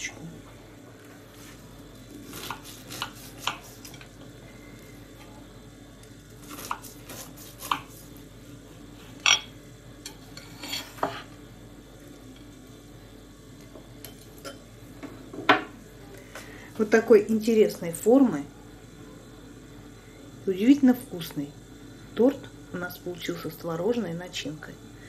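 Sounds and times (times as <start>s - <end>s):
knife scraping a ceramic plate: 10.1s - 11.3s.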